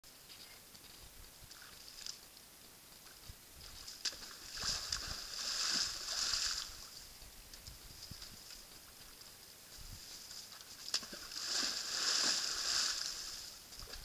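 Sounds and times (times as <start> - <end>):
splashing and slopping mud: 3.7 - 6.9, 10.4 - 14.0.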